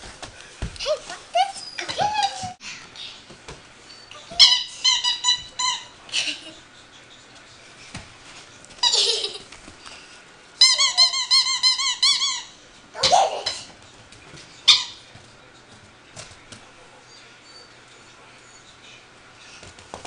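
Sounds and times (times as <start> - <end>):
squeaky toy squeaking: 4.2 - 6.0, 10.6 - 13.6.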